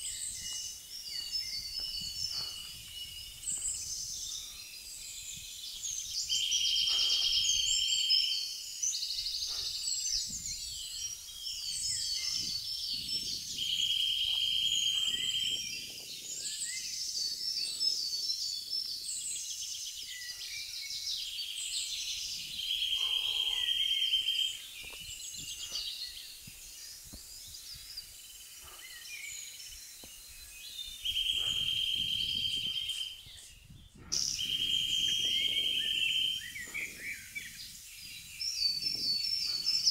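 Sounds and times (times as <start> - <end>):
woodland birdsong: 0.0 - 39.9
bird trilling: 22.8 - 24.6.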